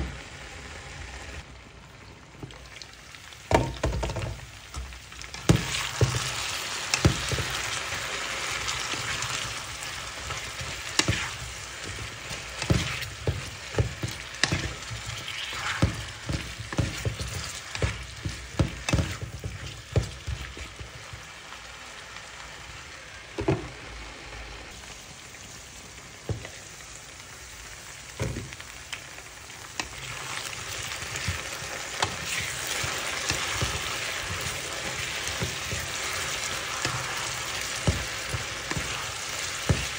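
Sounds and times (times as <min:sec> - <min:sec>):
potatoes sizzling in oil: 0:00.0 - 0:39.9
spatula knocking and scraping pan: 0:03.5 - 0:21.3, 0:29.8 - 0:39.9.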